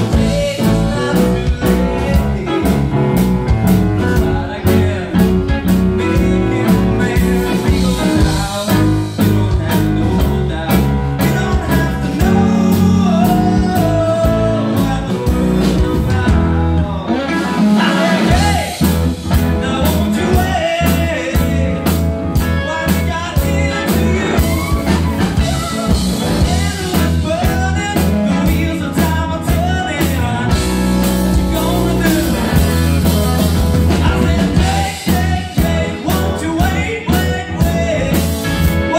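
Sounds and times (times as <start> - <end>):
electric guitar bent notes: 0.0 - 28.9
blues-rock band playing: 0.0 - 38.9.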